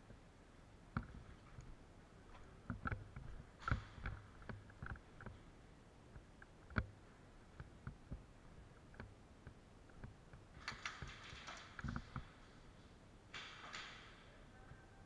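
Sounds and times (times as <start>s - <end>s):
gear clicks and knocks: 8.8s - 12.5s.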